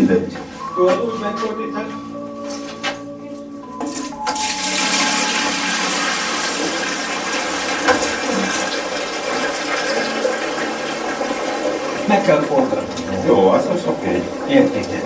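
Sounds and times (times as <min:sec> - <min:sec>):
liquid gushing into barrel: 0:04.4 - 0:15.0.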